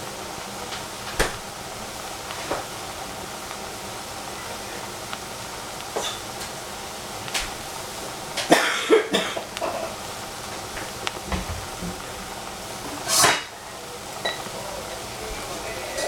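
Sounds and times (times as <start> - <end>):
saucepan hissing on gas burner: 0.0 - 16.0
person coughing: 8.5 - 9.9.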